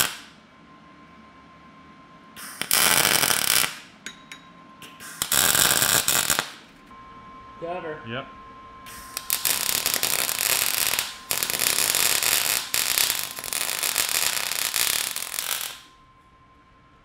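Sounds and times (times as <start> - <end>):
welding arc crackling and hissing: 0.0 - 0.3, 2.4 - 3.9, 4.8 - 6.6, 8.9 - 15.9.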